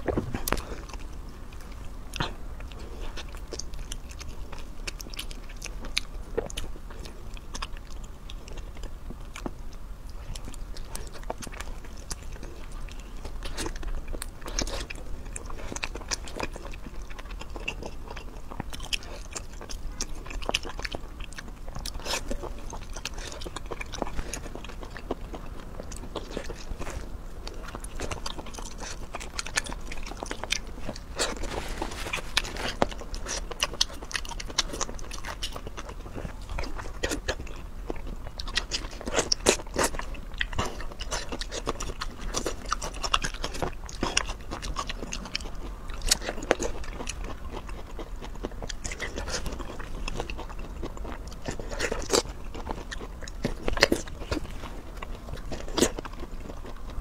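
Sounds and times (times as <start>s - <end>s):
person chewing crunchy food: 0.0s - 57.0s.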